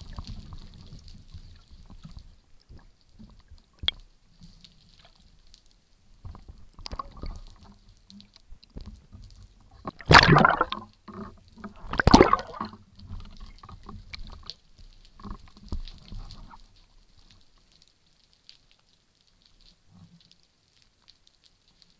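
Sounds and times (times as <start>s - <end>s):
faint ticks: 0.0s - 10.0s, 12.8s - 21.9s
underwater water moving: 0.0s - 21.9s
bubbles: 6.2s - 7.7s, 9.7s - 14.5s.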